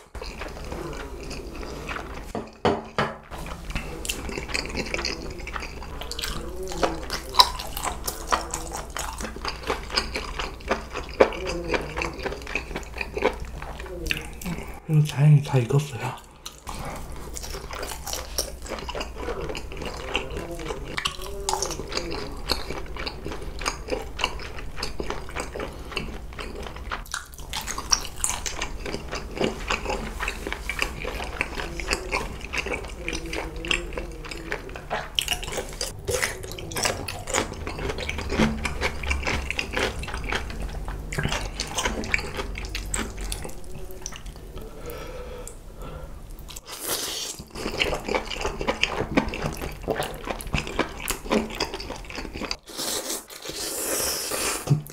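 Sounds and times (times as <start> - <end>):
wet chewing and smacking: 0.0 - 45.6, 46.3 - 54.9.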